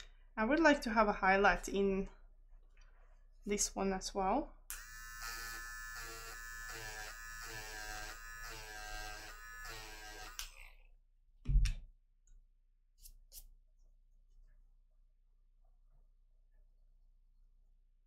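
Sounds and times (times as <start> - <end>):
electric eraser buzzing: 4.7 - 10.7.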